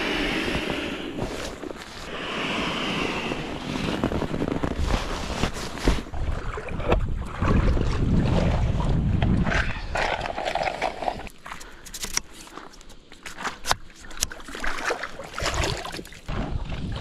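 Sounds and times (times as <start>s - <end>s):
water lapping: 0.0s - 17.0s
wind buffeting microphone: 2.2s - 10.1s.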